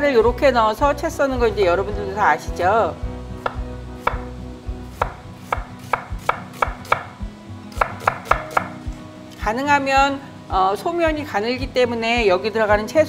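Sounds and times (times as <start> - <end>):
knife chopping on wooden board: 3.4 - 4.3, 4.9 - 8.8.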